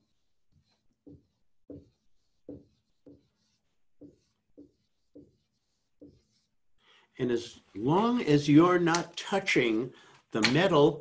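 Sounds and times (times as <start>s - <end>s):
marker squeaking on a whiteboard: 0.0s - 6.6s.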